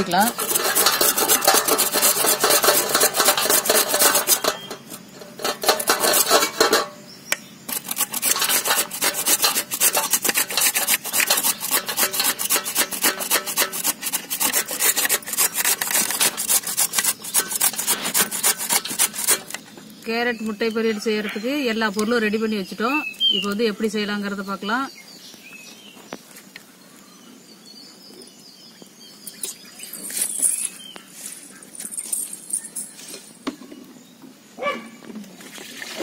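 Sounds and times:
carrot rasping on metal grater: 0.0s - 6.7s, 7.7s - 19.6s.

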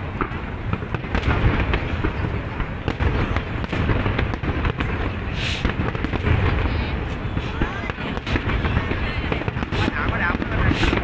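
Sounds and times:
fireworks booming and crackling: 0.0s - 11.0s
brief hiss: 5.3s - 5.8s.

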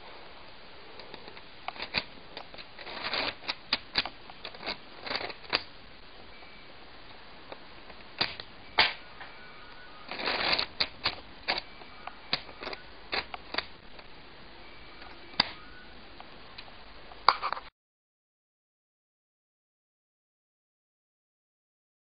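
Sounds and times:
plastic parts clicking and clacking: 1.0s - 5.7s, 7.5s - 14.1s, 15.0s - 15.6s.

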